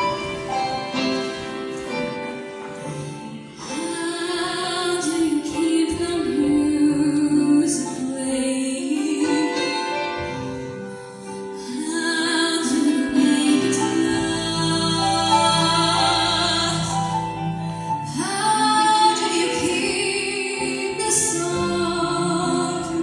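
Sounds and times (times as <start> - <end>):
instrumental accompaniment: 0.0 - 23.0
woman singing into microphone: 3.5 - 10.4, 11.6 - 23.0.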